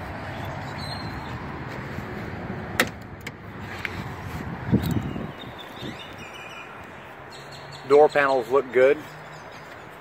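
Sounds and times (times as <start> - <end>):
car low rumble: 0.0 - 7.4.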